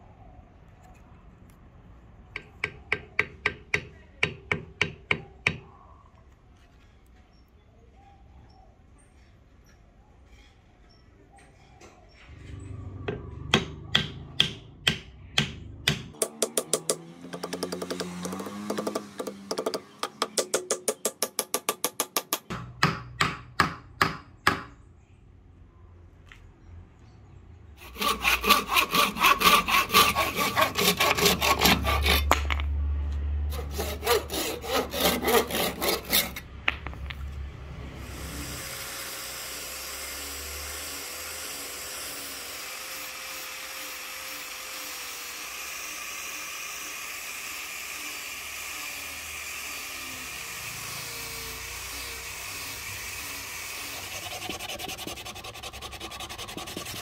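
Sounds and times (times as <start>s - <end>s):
hammer tapping wooden wedge: 2.4s - 5.6s, 13.5s - 24.7s
pull saw cutting wood: 15.9s - 22.5s, 27.8s - 32.7s, 33.5s - 36.6s, 37.8s - 57.0s
angle grinder sanding: 16.4s - 21.1s, 27.8s - 32.6s, 33.5s - 36.5s, 38.0s - 57.0s.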